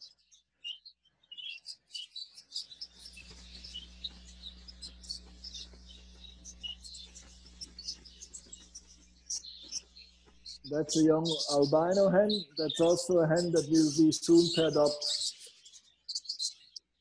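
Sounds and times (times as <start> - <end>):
budgerigars chirping: 0.0 - 17.0
low steady hum: 2.9 - 15.2.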